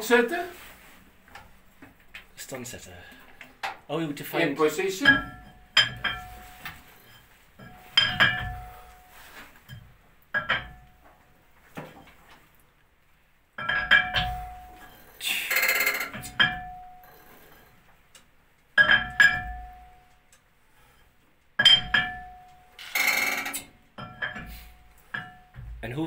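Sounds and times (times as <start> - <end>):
metallic clanks with ringing: 4.8 - 11.1, 13.6 - 17.7, 18.8 - 20.2, 21.6 - 26.0.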